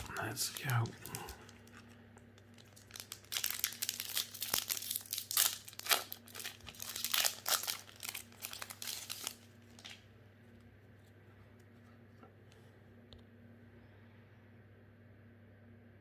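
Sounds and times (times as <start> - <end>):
foil wrapper crinkling: 0.0 - 10.0.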